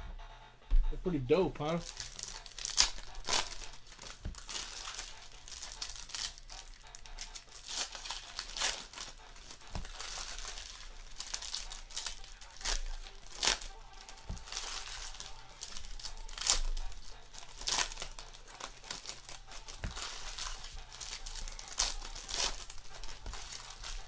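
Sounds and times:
foil wrappers torn and crinkled: 0:01.7 - 0:24.0.

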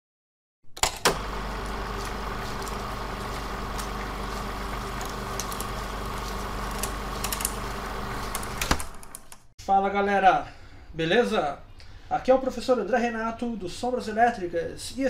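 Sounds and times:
clicks and crackles: 0:00.8 - 0:09.5
old film hum and hiss: 0:01.1 - 0:09.4.

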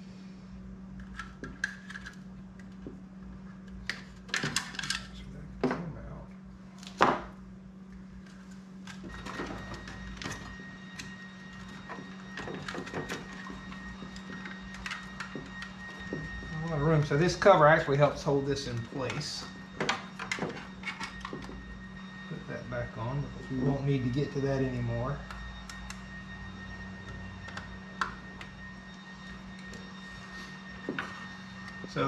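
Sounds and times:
steady low hum: 0:00.0 - 0:32.0
clicks and knocks handling parts: 0:03.6 - 0:05.2.

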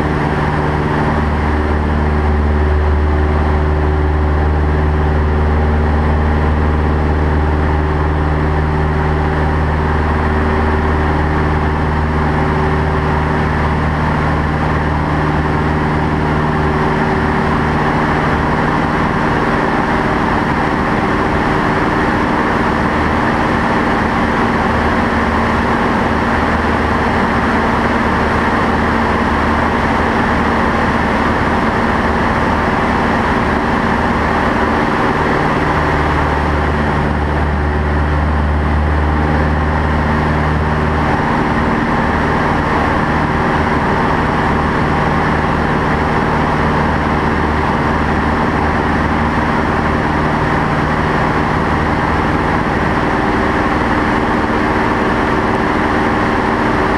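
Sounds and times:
propeller engine drone: 0:00.0 - 0:56.9
rushing airflow: 0:00.0 - 0:56.9.

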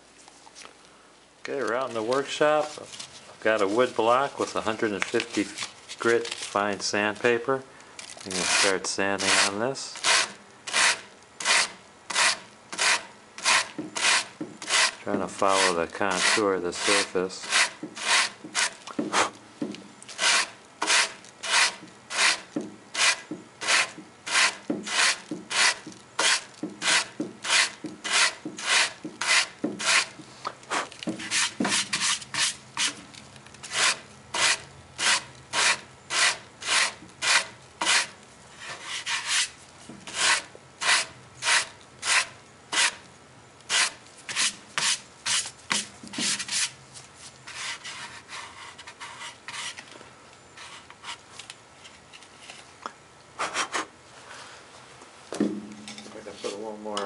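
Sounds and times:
sandpaper rasping on wood: 0:08.3 - 0:19.3, 0:20.2 - 0:33.0, 0:33.6 - 0:39.5, 0:40.1 - 0:43.0, 0:43.7 - 0:46.7.

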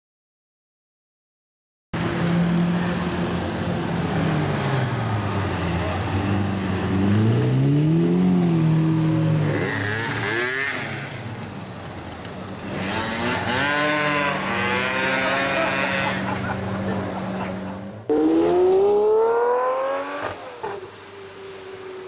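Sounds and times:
car engine revving hard: 0:12.8 - 0:16.5, 0:18.1 - 0:20.4.

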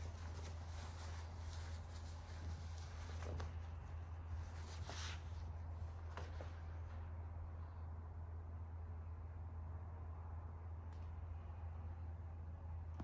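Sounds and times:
fabric rustling: 0:00.0 - 0:07.4
low hum: 0:00.0 - 0:13.0.

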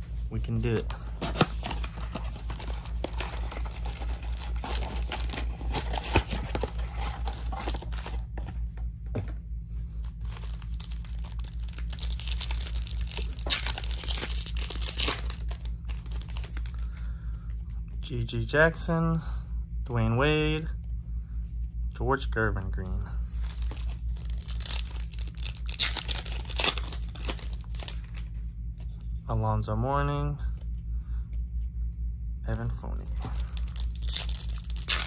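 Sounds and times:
steady low hum: 0:00.0 - 0:35.0
foil packs crinkling: 0:00.6 - 0:08.2, 0:10.2 - 0:17.0, 0:23.4 - 0:28.3, 0:33.2 - 0:35.0
foil pack tearing open: 0:01.2 - 0:08.1, 0:10.3 - 0:16.8, 0:23.5 - 0:28.2, 0:33.4 - 0:35.0
cardboard box being opened: 0:01.2 - 0:08.2.

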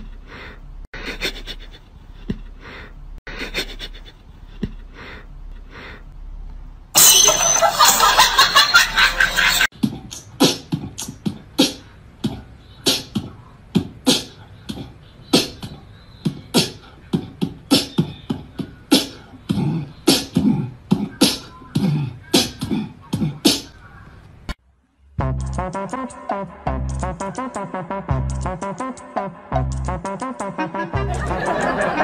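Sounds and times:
percussive beat of snaps and thumps: 0:09.7 - 0:14.8.

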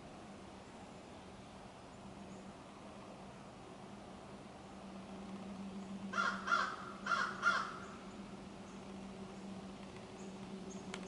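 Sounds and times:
faint steady hum: 0:00.0 - 0:11.0
crow cawing: 0:06.1 - 0:08.0.

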